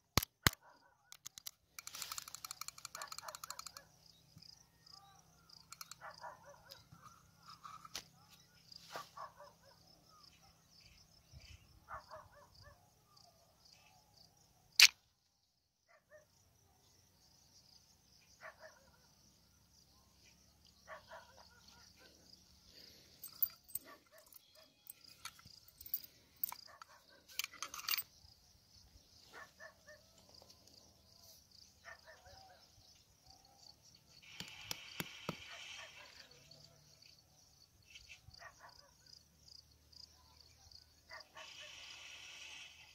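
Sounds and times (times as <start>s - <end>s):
insects chirping: 0.1s - 42.9s
small clicks and rustles: 0.2s - 3.9s
sharp loud click: 14.8s - 15.0s.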